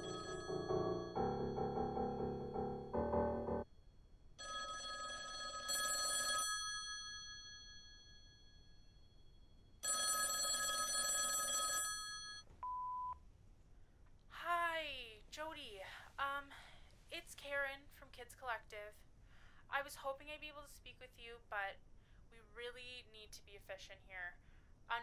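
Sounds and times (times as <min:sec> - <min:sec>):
telephone ringing: 0:00.0 - 0:01.4, 0:04.4 - 0:08.0, 0:09.8 - 0:13.0
background music: 0:00.0 - 0:03.7.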